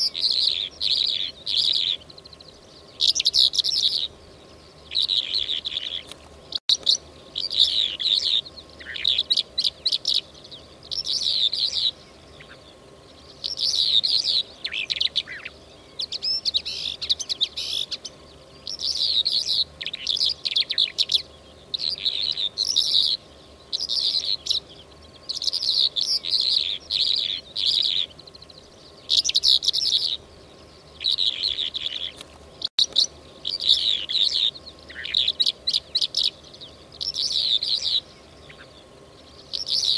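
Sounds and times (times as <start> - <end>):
lark twittering and trilling: 0.0 - 32.2, 32.8 - 39.9.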